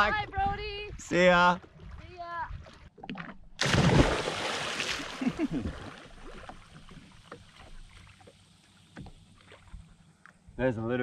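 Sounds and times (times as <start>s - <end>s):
water lapping against hull: 0.0s - 10.3s
person splashing into water: 3.6s - 6.9s.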